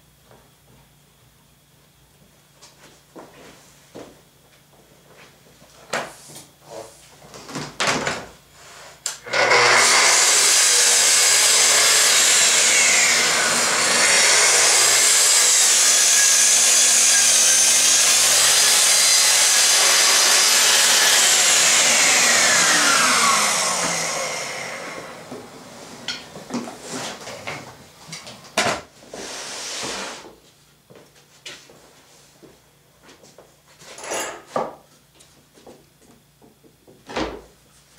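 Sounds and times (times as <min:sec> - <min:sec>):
circular saw cutting plywood: 0:09.1 - 0:26.2.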